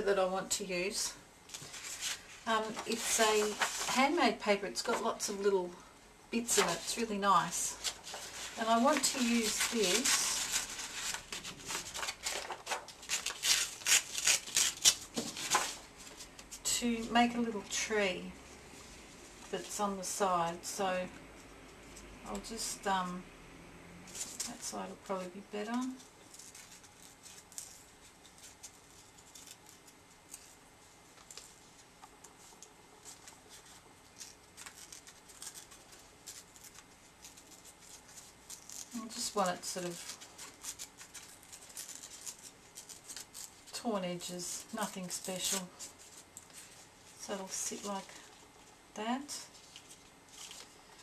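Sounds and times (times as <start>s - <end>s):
paper being torn: 7.8s - 15.9s, 33.1s - 43.6s.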